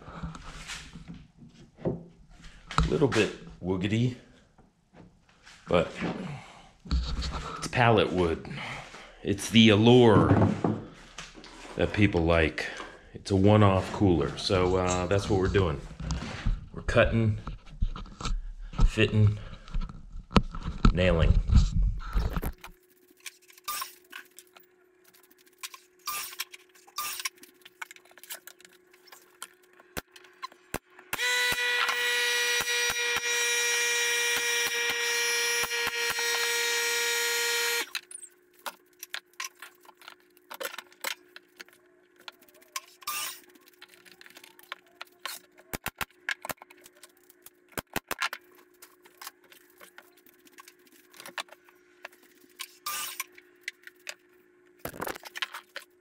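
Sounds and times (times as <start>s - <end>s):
shop machine electric motor: 31.1s - 38.0s, 42.8s - 43.5s.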